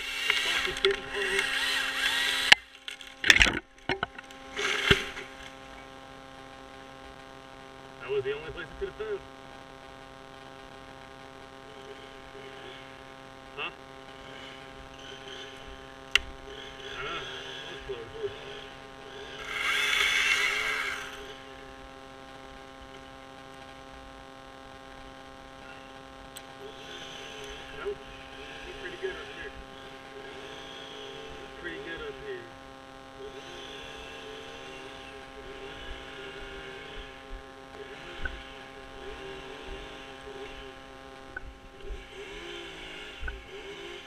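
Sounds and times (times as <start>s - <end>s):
chainsaw cutting wood: 0.0s - 5.7s, 14.1s - 21.7s, 26.4s - 32.2s, 33.2s - 40.9s, 41.7s - 44.0s
wood cracking: 0.1s - 5.7s.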